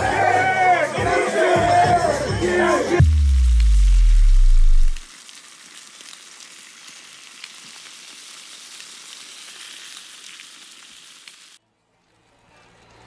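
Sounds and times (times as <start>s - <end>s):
deep bass tone sliding down: 3.0s - 5.0s
crackling hiss with clicks: 3.1s - 13.0s.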